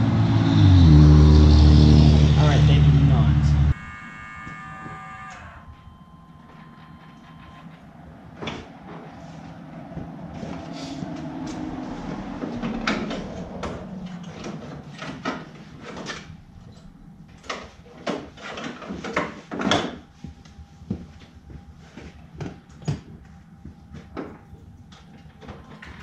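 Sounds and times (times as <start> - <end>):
low rumble: 5.6 - 18.0.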